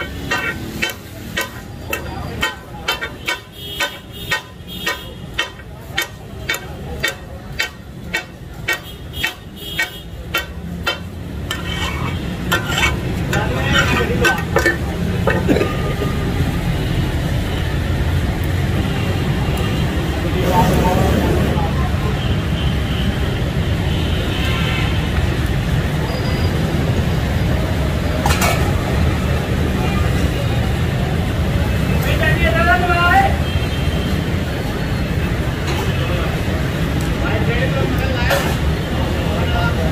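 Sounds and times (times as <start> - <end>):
metal blades clacking on iron griddle: 0.0 - 15.6
faint voices: 0.0 - 16.8
street traffic rumble: 0.0 - 39.9.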